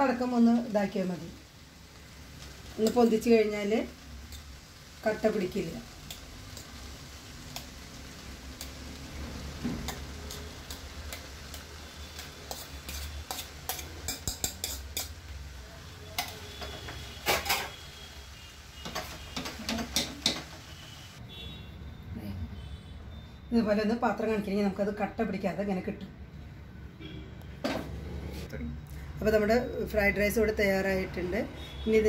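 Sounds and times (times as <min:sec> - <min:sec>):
spatula stirring rice: 0:09.8 - 0:15.2.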